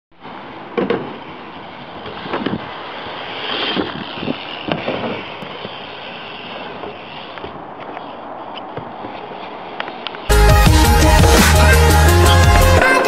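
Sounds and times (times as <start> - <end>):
wheels rolling on concrete: 0.2 - 10.3.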